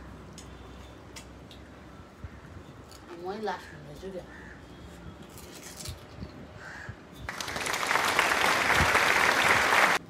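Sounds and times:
crowd applause: 0:07.3 - 0:10.0.

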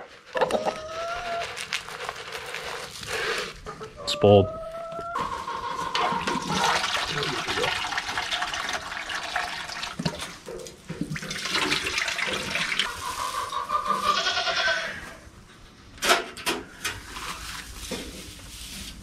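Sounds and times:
hay rustling: 0:01.1 - 0:03.6, 0:17.1 - 0:19.0
water pouring into a dish: 0:06.0 - 0:12.9
goat bleating: 0:13.9 - 0:15.2.

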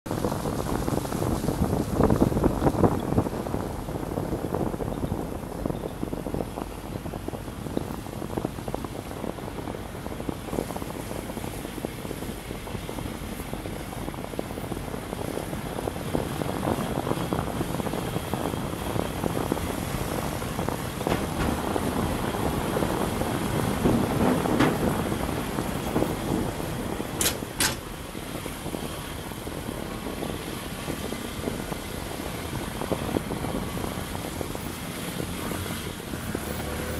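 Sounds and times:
vehicle engine and road noise: 0:00.0 - 0:36.9
rattles and knocks: 0:20.5 - 0:28.0.

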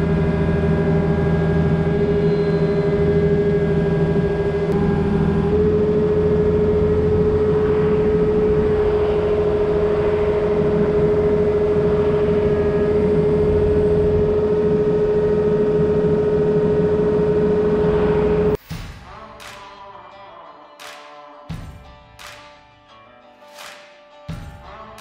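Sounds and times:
excavator diesel engine running: 0:00.0 - 0:18.6.

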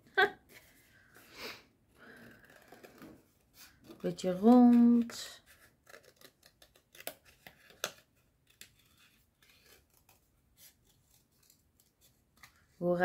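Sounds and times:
scissors snipping cardstock: 0:03.9 - 0:10.1.

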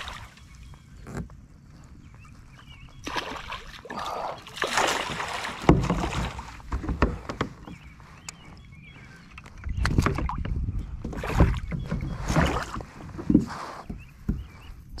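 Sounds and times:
river water splashing: 0:00.0 - 0:00.6, 0:03.0 - 0:06.7
handling bumps and knocks: 0:05.1 - 0:07.9.

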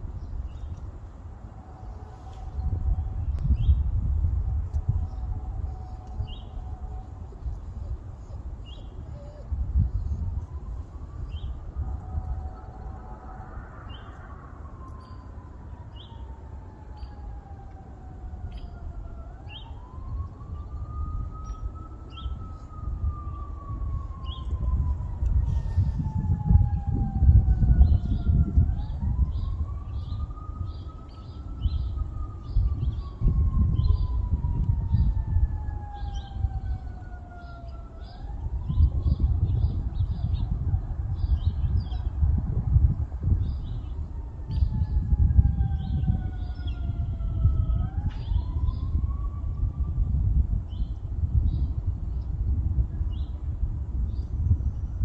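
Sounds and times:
steady low rumble: 0:00.0 - 0:55.0
siren wailing: 0:01.4 - 0:50.8
small birds chirping: 0:05.0 - 0:10.2.

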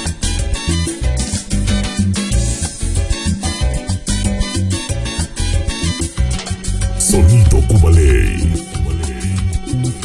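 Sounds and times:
salsa music: 0:07.0 - 0:10.0.

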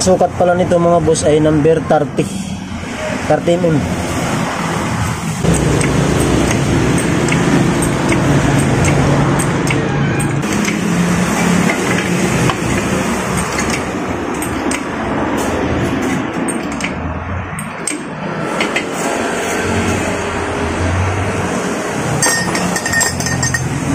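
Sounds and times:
loud mechanical hum: 0:02.2 - 0:23.9.

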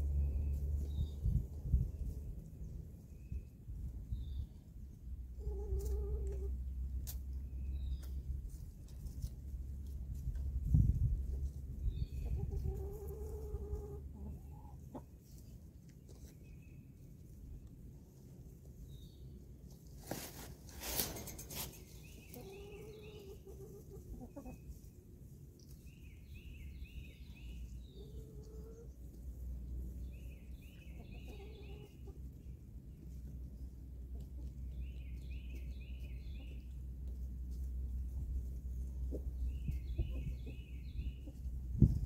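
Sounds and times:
hens clucking: 0:05.3 - 0:07.2, 0:11.4 - 0:16.3, 0:20.0 - 0:25.0, 0:27.6 - 0:30.0, 0:30.8 - 0:32.6, 0:35.5 - 0:42.0.

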